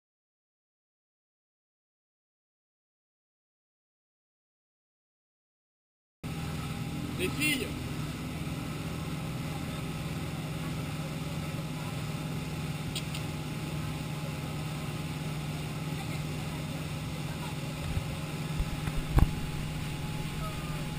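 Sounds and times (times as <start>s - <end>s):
boat motor humming: 6.2s - 20.9s
wind: 6.2s - 20.9s
water rushing: 6.3s - 20.9s.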